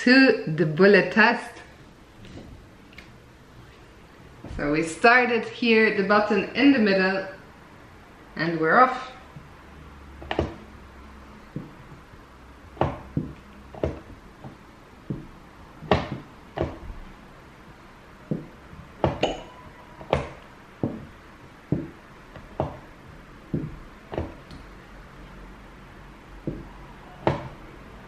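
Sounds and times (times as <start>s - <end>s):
chess pieces knocking on board: 12.8s - 17.0s, 20.0s - 21.1s, 21.7s - 22.9s, 26.4s - 26.7s.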